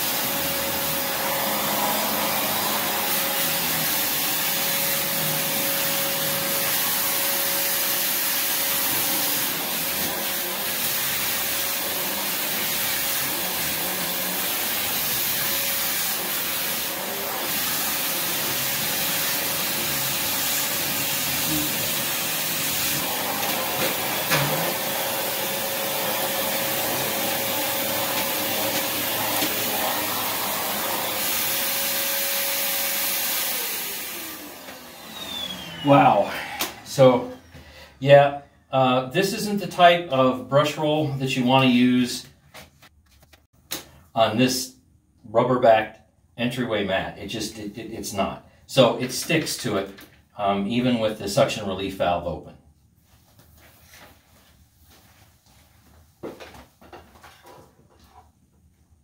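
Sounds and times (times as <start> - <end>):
backpack vacuum running: 0.0 - 37.1
vacuum nozzle on rubber mat: 0.0 - 37.1.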